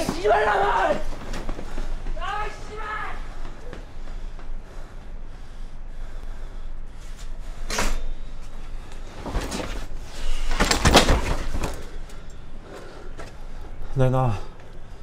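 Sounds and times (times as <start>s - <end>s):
knocks and rustling of a scuffle: 9.0s - 12.0s.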